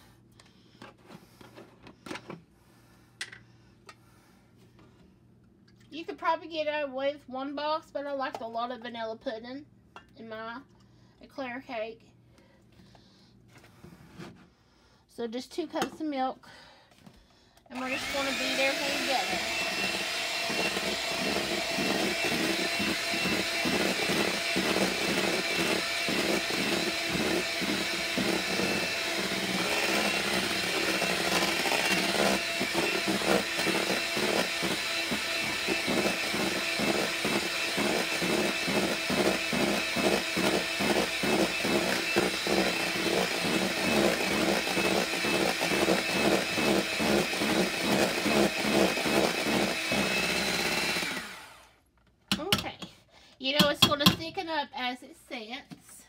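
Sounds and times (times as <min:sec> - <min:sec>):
electric hand mixer running: 0:17.7 - 0:51.8.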